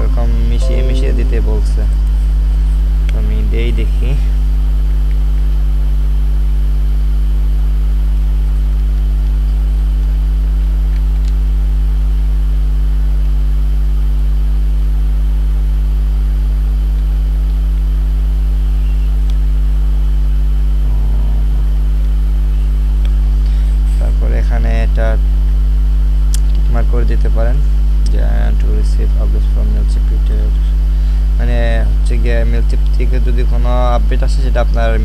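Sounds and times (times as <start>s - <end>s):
electrical hum: 32.0s - 35.0s.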